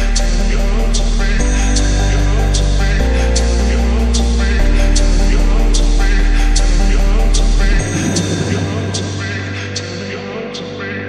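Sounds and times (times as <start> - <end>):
music with deep bass line: 0.0 - 11.0
sharp beat: 7.7 - 10.2.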